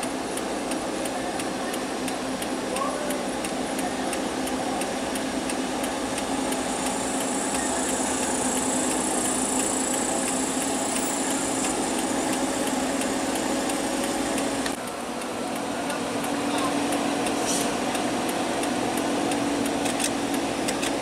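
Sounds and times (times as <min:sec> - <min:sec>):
quick regular ticking: 0:00.0 - 0:15.3
vehicle engine running: 0:00.0 - 0:21.0.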